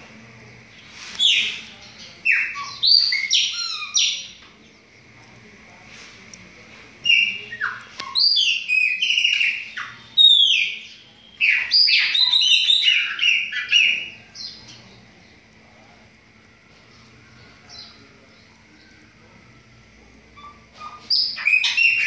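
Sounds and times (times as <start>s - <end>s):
blackbird whistled song: 1.2s - 4.4s, 7.0s - 14.6s, 20.4s - 22.0s.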